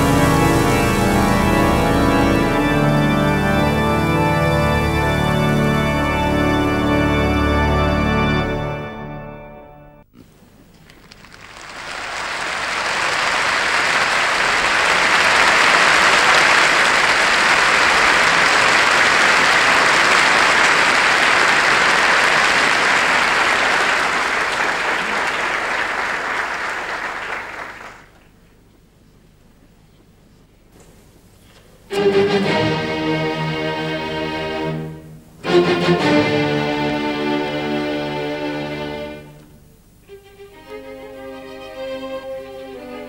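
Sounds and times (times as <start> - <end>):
audience applauding: 10.8 - 28.4.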